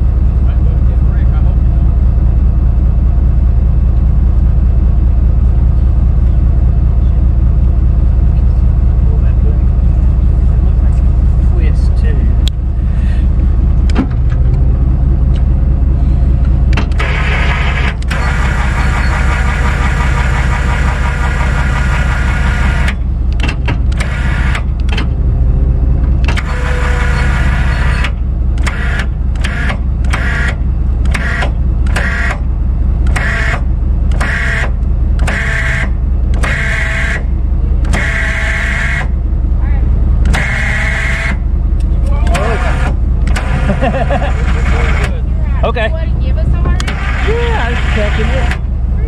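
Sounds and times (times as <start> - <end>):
vehicle engine rumble: 0.0 - 49.0
high-pitched pulsing tone: 17.0 - 23.2, 33.1 - 39.3, 39.9 - 43.7.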